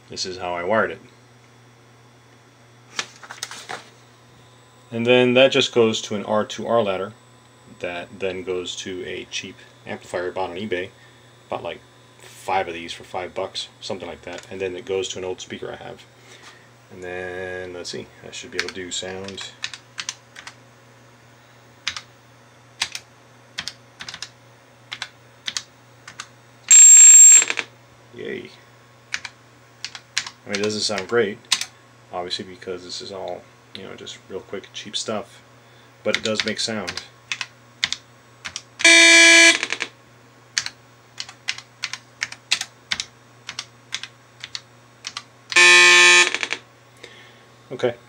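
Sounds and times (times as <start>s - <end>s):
computer keys clicking: 18.6s - 20.6s, 21.9s - 22.1s, 22.8s - 23.0s, 23.6s - 24.3s, 24.9s - 26.3s, 29.1s - 31.7s, 36.2s - 38.7s, 39.5s - 39.9s, 40.6s - 45.6s, 46.2s - 46.6s
keyboard keys clicking: 23.6s - 24.3s, 40.6s - 45.6s
high buzzy speaker tone: 26.7s - 27.6s, 38.8s - 39.9s, 45.6s - 46.6s.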